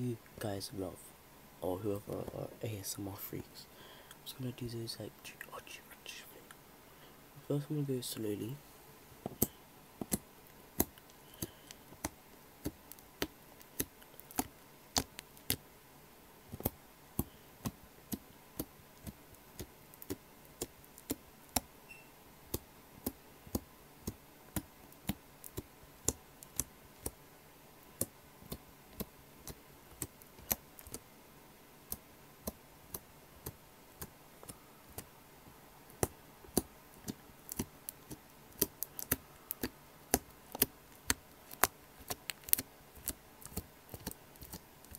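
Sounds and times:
slime clicking and popping: 0:09.4 - 0:10.2, 0:10.8 - 0:15.6, 0:16.5 - 0:21.7, 0:22.4 - 0:27.2, 0:35.9 - 0:44.9.

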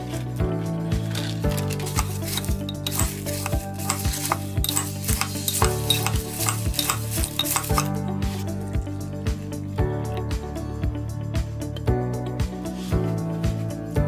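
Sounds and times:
background music with steady beat: 0:00.0 - 0:14.0
spoon stirring rice in glass jar: 0:01.1 - 0:08.0.

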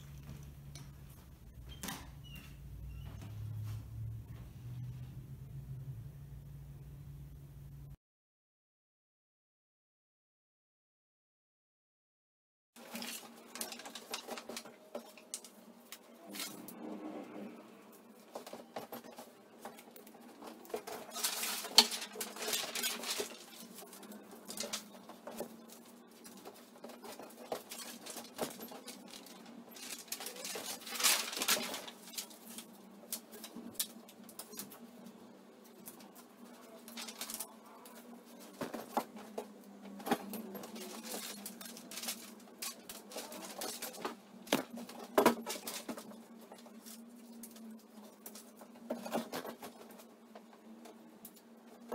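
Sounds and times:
faint low hum: 0:00.0 - 0:08.0
paper sheets rustling: 0:12.8 - 0:16.7, 0:18.0 - 0:50.1
tape tearing: 0:20.7 - 0:25.5.

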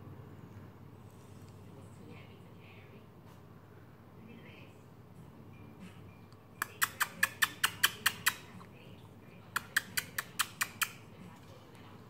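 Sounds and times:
sharp clicking chirps: 0:06.6 - 0:08.4.

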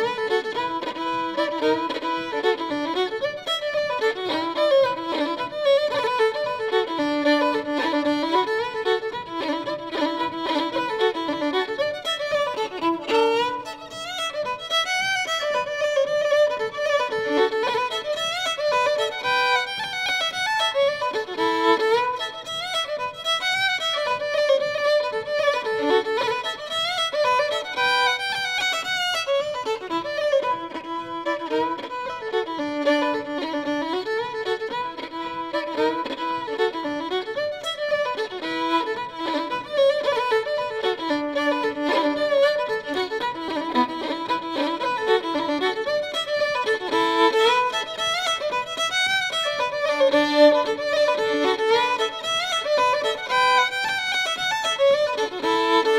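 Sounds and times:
fiddle melody: 0:00.0 - 0:55.9.

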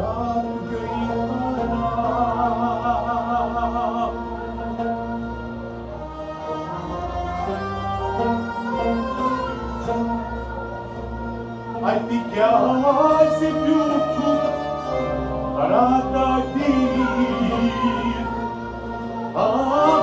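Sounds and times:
man singing: 0:00.0 - 0:04.3, 0:11.8 - 0:18.7, 0:19.3 - 0:20.0
harmonium and strings: 0:00.0 - 0:20.0.

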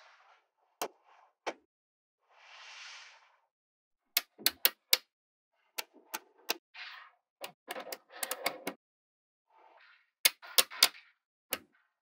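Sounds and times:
magnetic balls clicking together: 0:10.3 - 0:11.0.

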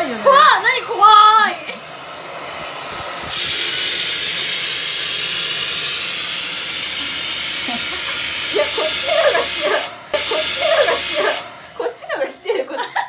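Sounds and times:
vacuum cleaner high hiss: 0:00.0 - 0:12.9
woman squealing: 0:08.0 - 0:11.4.

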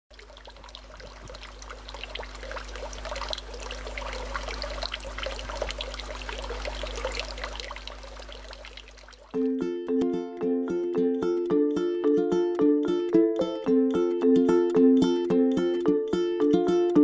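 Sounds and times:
water trickling and splashing: 0:00.1 - 0:09.4
steady low hum: 0:00.2 - 0:09.3.

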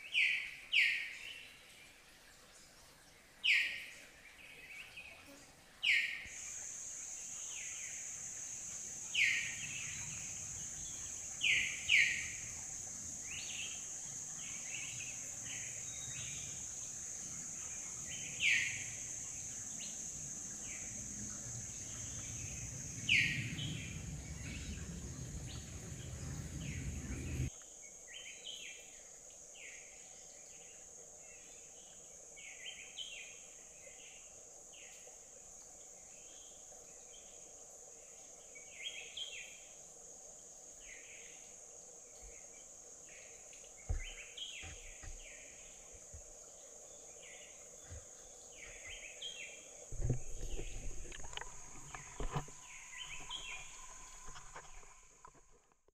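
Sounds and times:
high insect drone: 0:05.9 - 0:55.7
birds chirping: 0:08.7 - 0:27.5, 0:47.3 - 0:55.4
low rumble of water: 0:20.2 - 0:27.5, 0:44.8 - 0:55.9.

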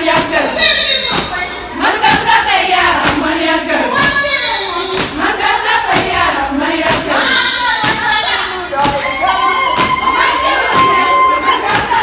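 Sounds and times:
steady beat of sharp strikes: 0:00.0 - 0:09.0
women singing together: 0:00.0 - 0:12.0.

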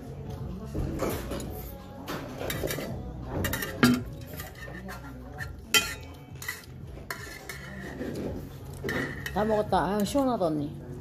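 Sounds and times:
metal tableware clinking: 0:01.0 - 0:10.4.

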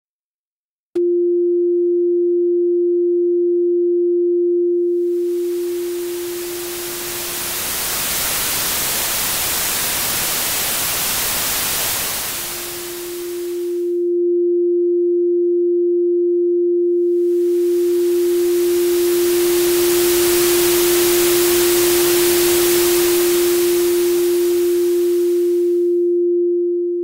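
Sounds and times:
low sine-wave tone: 0:01.0 - 0:27.0
white noise hiss: 0:05.3 - 0:13.9, 0:17.4 - 0:25.8.

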